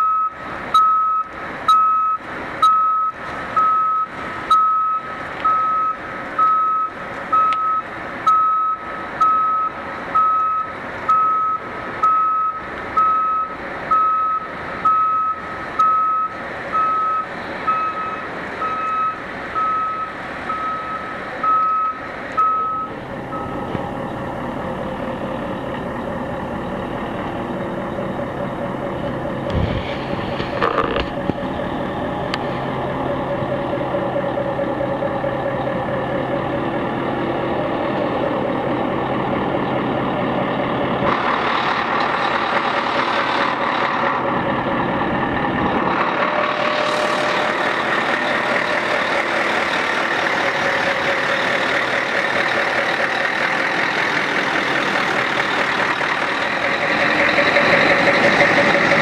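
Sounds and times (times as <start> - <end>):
reversing alarm beeping: 0.0 - 23.7
diesel engine running: 0.0 - 59.0.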